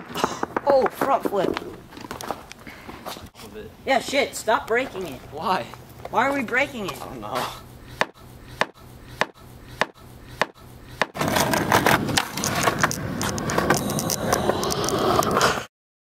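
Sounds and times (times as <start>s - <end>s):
rough continuous noise with clicks: 0.1s - 7.2s, 11.3s - 15.4s
skateboard slammed against concrete: 8.0s - 12.9s.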